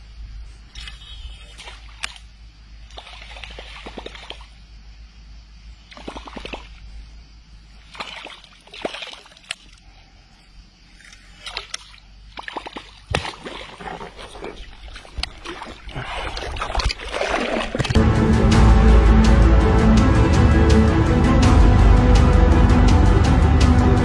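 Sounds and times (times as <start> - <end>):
water splashing from thrashing fish: 2.9 - 4.5, 7.9 - 9.7, 11.4 - 18.0.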